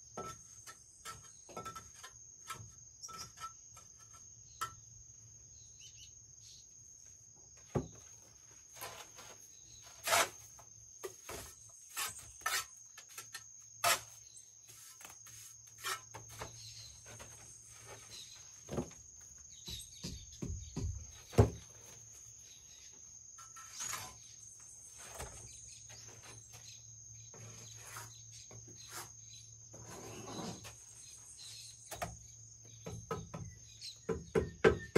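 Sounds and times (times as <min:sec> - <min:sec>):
trowel and bricks knocking and scraping: 0:00.0 - 0:05.0, 0:07.6 - 0:22.2.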